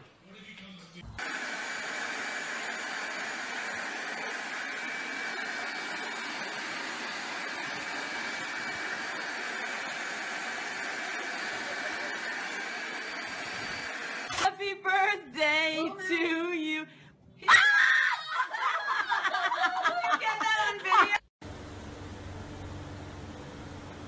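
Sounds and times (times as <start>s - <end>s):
high motor whine: 1.2s - 14.3s
air blower rushing: 1.2s - 14.4s.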